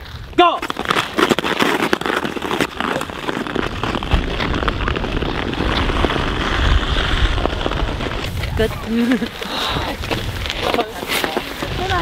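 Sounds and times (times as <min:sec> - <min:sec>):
skate blades scraping on ice: 0:00.0 - 0:12.0
wind rumble on microphone: 0:03.0 - 0:12.0.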